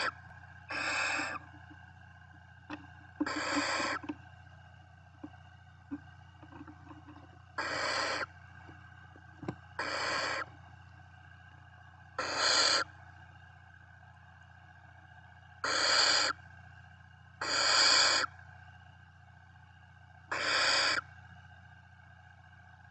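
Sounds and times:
owl chicks hissing: 0.0s - 1.5s, 3.2s - 4.1s, 7.6s - 8.3s, 9.8s - 10.5s, 12.2s - 12.9s, 15.6s - 16.4s, 17.4s - 18.3s, 20.3s - 21.0s.

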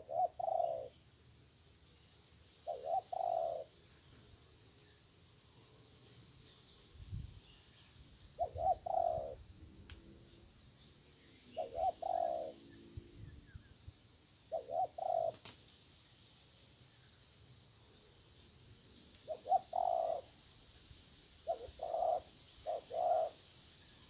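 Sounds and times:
dove cooing: 0.0s - 1.0s, 2.6s - 3.7s, 8.4s - 9.5s, 11.5s - 12.6s, 14.5s - 15.5s, 19.2s - 20.3s, 21.4s - 23.4s.

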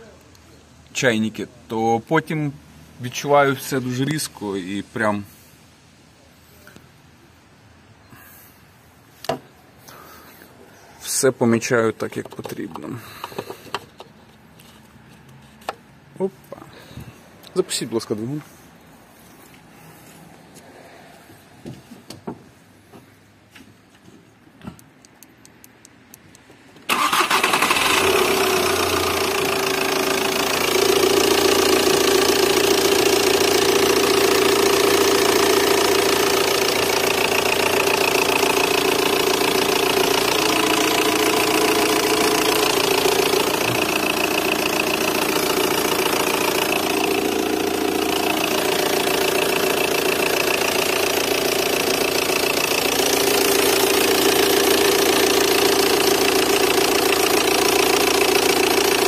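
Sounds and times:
diesel car engine starting and idling: 12.3s - 15.8s, 26.1s - 59.0s.

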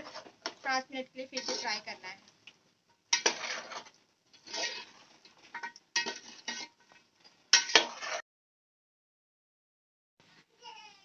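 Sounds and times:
metal spatula scraping steel pot: 0.0s - 2.2s, 2.9s - 8.2s
meat frying: 0.0s - 8.2s.

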